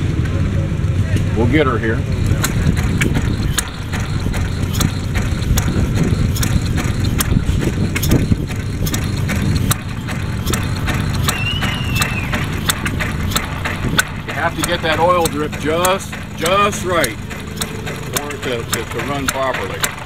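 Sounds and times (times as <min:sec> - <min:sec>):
single-cylinder engine firing pops: 0:02.0 - 0:20.0.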